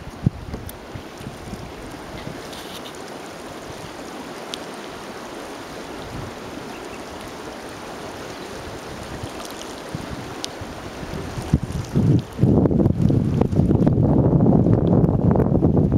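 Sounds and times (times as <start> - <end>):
river water flowing: 0.0 - 15.1.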